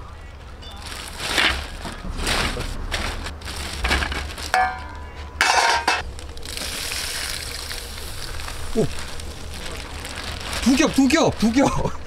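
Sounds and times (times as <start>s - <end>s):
hard objects clinking and rattling: 0.8s - 7.7s.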